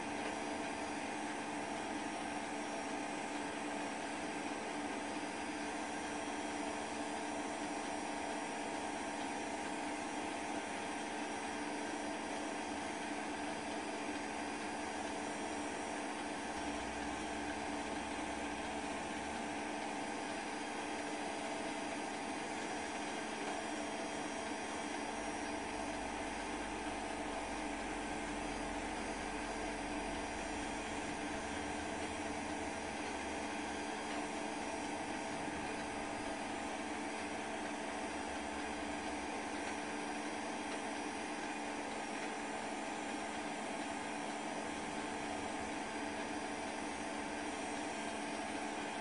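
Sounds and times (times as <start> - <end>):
steady hum and hiss with tones: 15.3 - 47.9.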